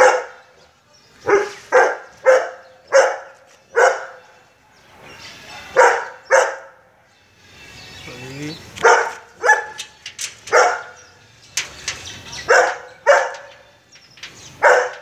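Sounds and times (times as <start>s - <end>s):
dog barking: 0.0s - 0.5s, 1.2s - 4.4s, 5.7s - 6.9s, 8.8s - 9.9s, 10.5s - 11.1s, 12.4s - 13.6s, 14.6s - 15.0s.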